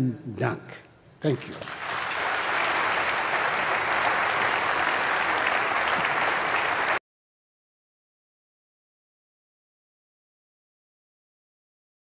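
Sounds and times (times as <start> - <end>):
audience applauding: 1.4 - 7.0.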